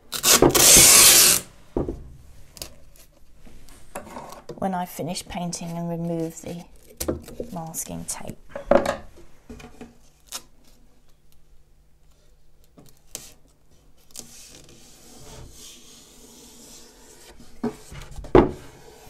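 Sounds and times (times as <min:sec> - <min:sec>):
tape rubbing on wood: 0:00.1 - 0:01.4
tape taps and rustles: 0:12.6 - 0:13.3.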